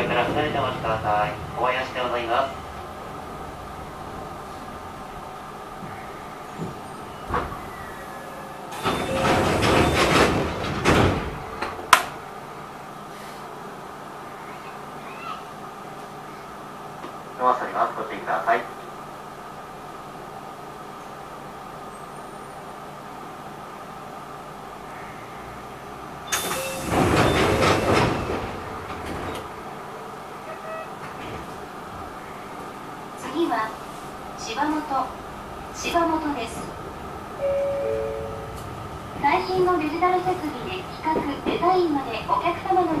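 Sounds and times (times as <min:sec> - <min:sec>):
train doors sliding shut: 0:00.0 - 0:12.2, 0:26.3 - 0:43.0
train doors closing with hiss: 0:05.8 - 0:12.2, 0:26.2 - 0:29.7.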